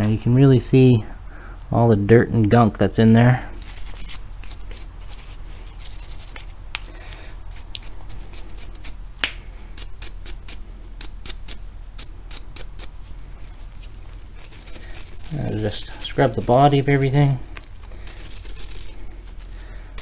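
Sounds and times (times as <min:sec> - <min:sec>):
brush scrubbing metal parts: 0:03.6 - 0:06.6, 0:09.7 - 0:20.0.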